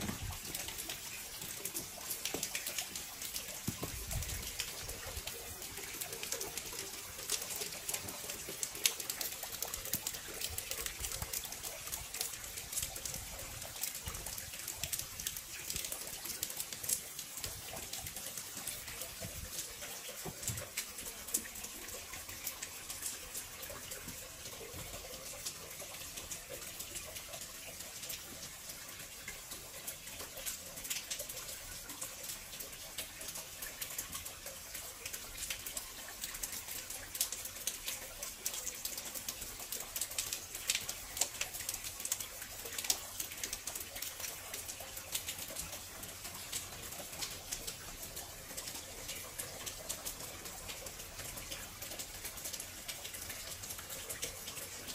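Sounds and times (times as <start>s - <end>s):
drips ticking on hard surfaces: 0.0s - 54.9s
steady light rain: 0.0s - 54.9s.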